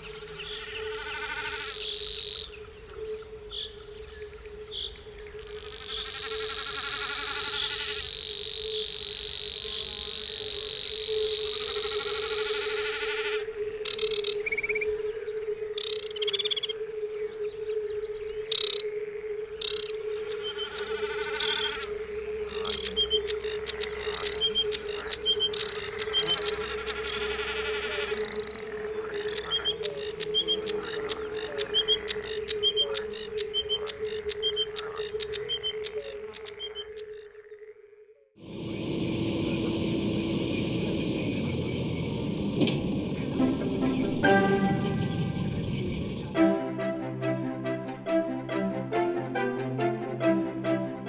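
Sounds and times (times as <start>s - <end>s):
birds singing and calling: 0.0s - 37.9s, 38.6s - 46.4s
frogs croaking in chorus: 0.0s - 38.4s
steady low hum: 38.4s - 46.6s.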